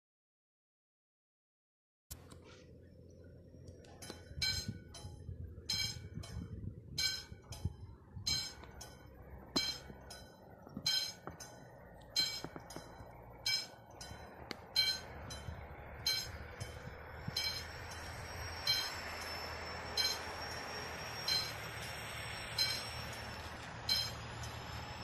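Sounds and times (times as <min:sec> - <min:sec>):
level crossing bell ringing: 0:08.3 - 0:20.4, 0:23.8 - 0:24.2.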